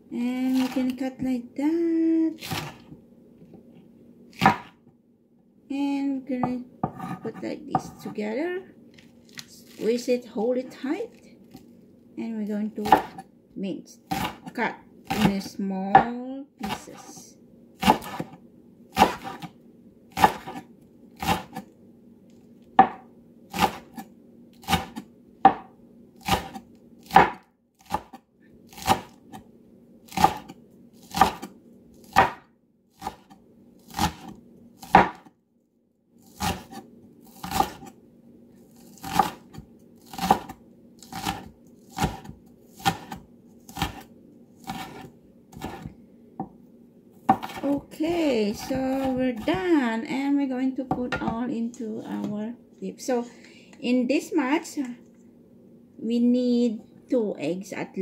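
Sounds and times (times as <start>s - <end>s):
cleaver chopping on wooden board: 4.4s - 4.7s, 12.8s - 13.2s, 20.2s - 20.6s, 22.8s - 23.0s, 26.3s - 28.2s, 31.1s - 31.5s, 32.1s - 32.4s, 34.9s - 35.3s, 37.4s - 37.9s, 39.0s - 43.2s, 44.7s - 46.5s, 47.3s - 47.7s.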